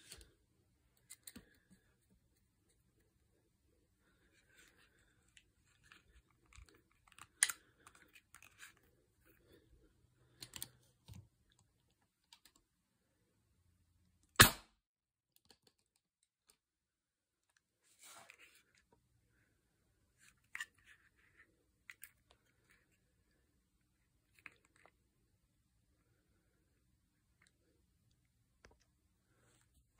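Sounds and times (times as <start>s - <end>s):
air pistol shot: 14.4s - 14.6s.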